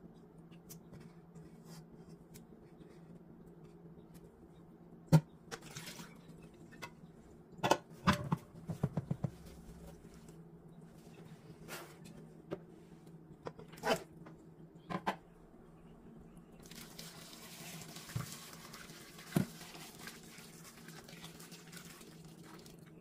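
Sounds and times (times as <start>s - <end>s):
hot water pouring into pot: 16.6s - 22.9s.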